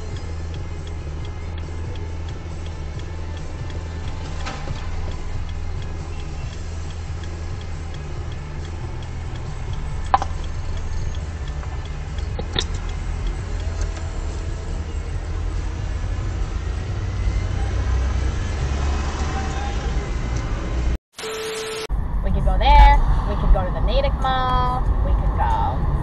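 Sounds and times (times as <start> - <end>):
sharp clicks: 0.0 - 15.8
faint regular ticking: 0.0 - 17.4
car engine and tyres rumbling: 0.0 - 21.0, 21.9 - 26.0.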